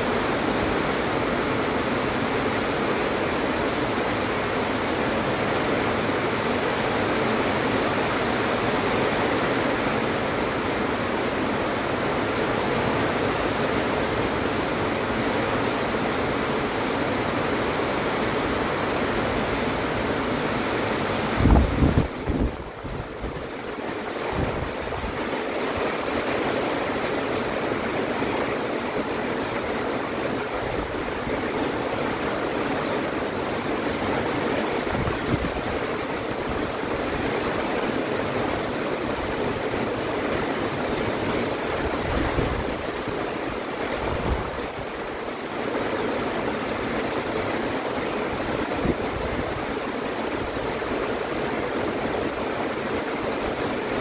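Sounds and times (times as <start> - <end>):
heavy rain pouring: 0.0 - 54.0
wind buffeting microphone: 21.3 - 23.5, 24.3 - 25.3.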